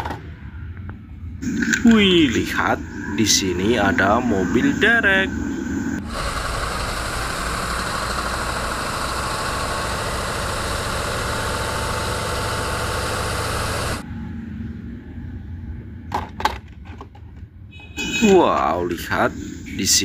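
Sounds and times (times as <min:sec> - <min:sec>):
diesel engine running: 0:05.8 - 0:14.0.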